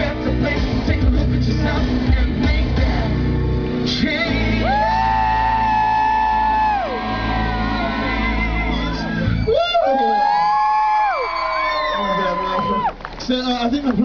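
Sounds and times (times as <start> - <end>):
man singing live: 0.0 - 5.8
amplified backing music: 0.0 - 10.4.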